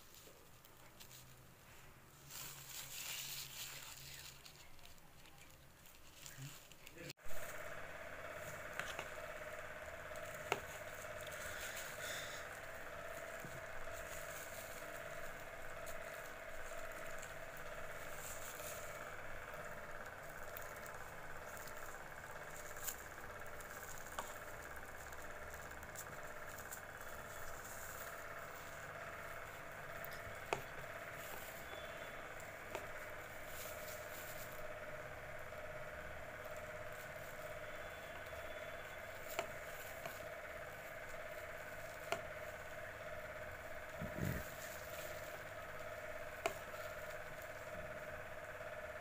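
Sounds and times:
plastic bag rustling: 0.0 - 37.9
faint steady hum: 0.0 - 49.0.

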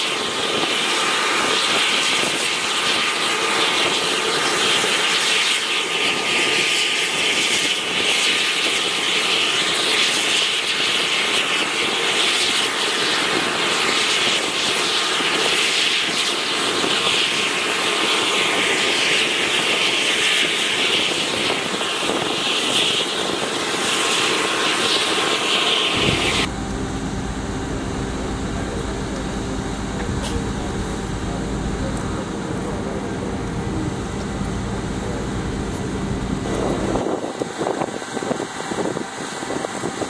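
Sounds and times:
jet turbine whine: 0.0 - 40.0
low steady rumble with hum: 26.0 - 39.6.

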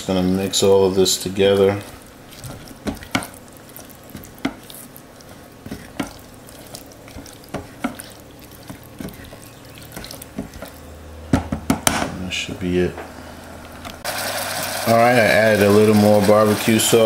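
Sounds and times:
spatula stirring wet food: 0.0 - 11.7, 14.0 - 17.0
spatula knocking on pot: 2.4 - 3.4, 4.1 - 4.7, 5.6 - 6.4, 7.1 - 12.0.

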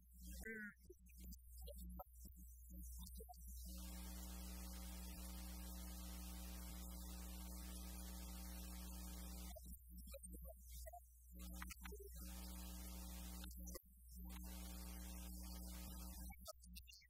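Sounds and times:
electrical mains hum with hiss: 3.6 - 9.9, 11.4 - 16.4.

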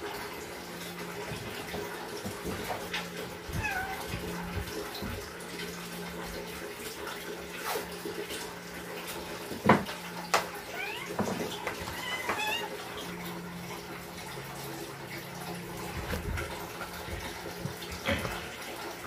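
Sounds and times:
cat meowing: 3.5 - 4.2, 10.6 - 12.8.

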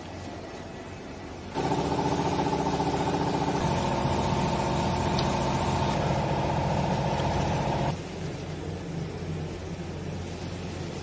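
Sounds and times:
hydraulic pump motor humming: 1.6 - 8.0.

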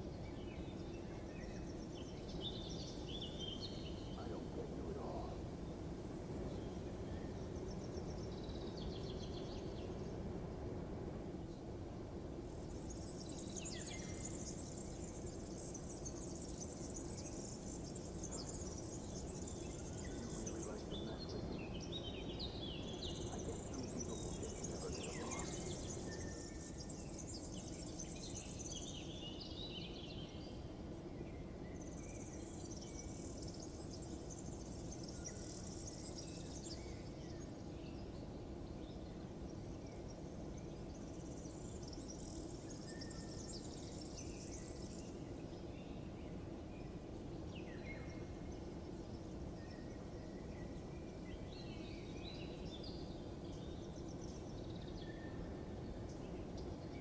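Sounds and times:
insects trilling: 0.0 - 57.0
birds chirping: 0.1 - 57.0
low background rumble: 0.2 - 28.2.

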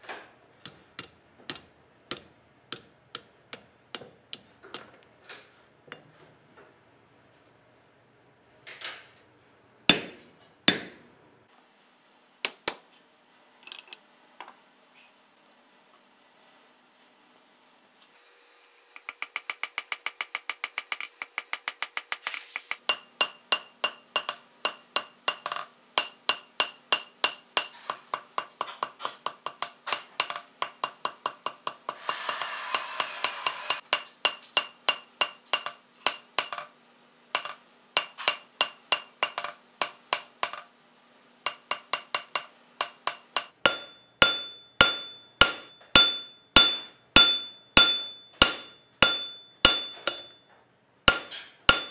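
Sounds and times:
hammer striking hot metal on anvil: 0.6 - 4.9, 9.9 - 11.0, 19.0 - 36.8, 37.4 - 40.7, 41.5 - 50.5, 51.1 - 51.9.

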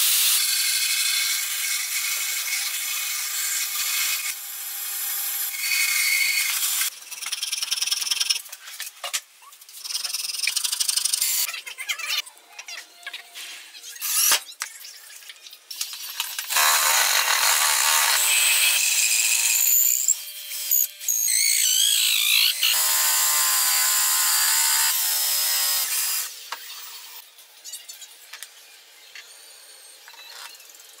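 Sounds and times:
power drill shaving wood: 16.5 - 27.2.

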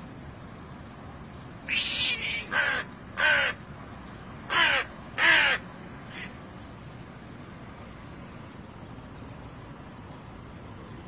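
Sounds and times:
crow cawing: 1.7 - 3.6, 4.5 - 6.4.

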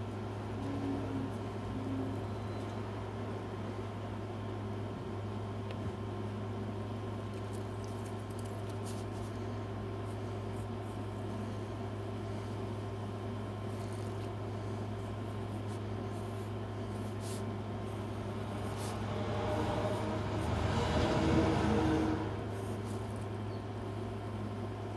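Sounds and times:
low mechanical hum: 0.0 - 24.9
pencil scratching on paper: 13.8 - 21.6.

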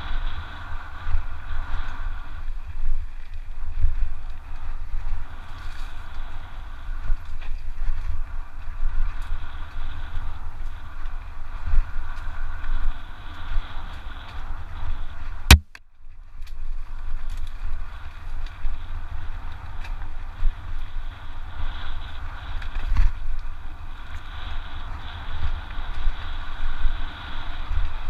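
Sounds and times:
bike rattling over rough ground: 0.0 - 28.0
wind buffeting microphone: 0.0 - 28.0
sharp knock: 15.5 - 15.8.

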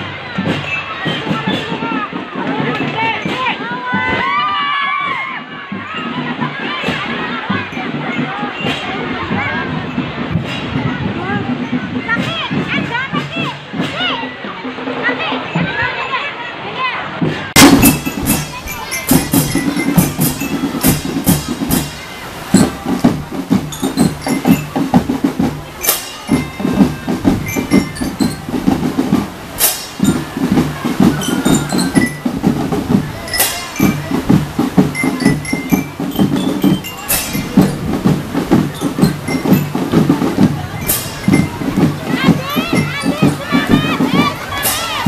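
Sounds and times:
marching drums: 0.0 - 45.0
cymbal crash: 17.6 - 18.6.

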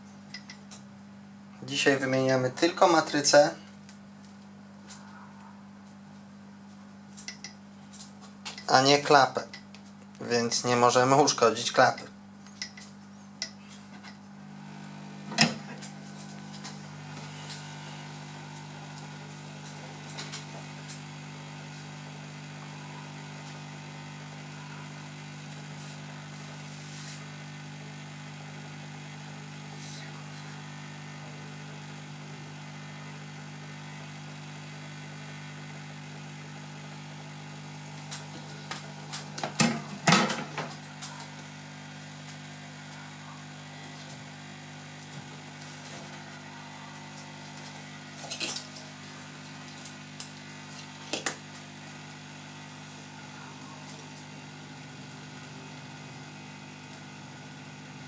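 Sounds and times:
hot-air gun blowing with hum: 12.6 - 58.0.

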